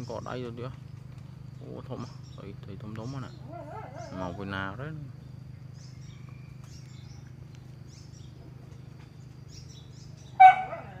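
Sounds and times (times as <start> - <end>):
small birds chirping: 0.0 - 11.0
loud pitched cry: 10.4 - 11.0.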